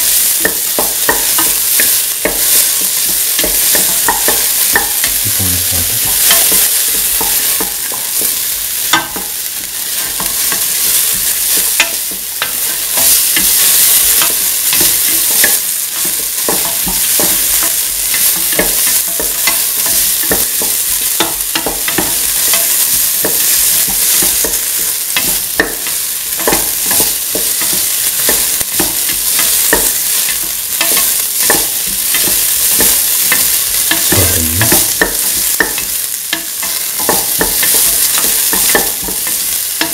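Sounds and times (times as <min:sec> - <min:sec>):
onions sizzling in a pan: 0:00.0 - 0:39.9.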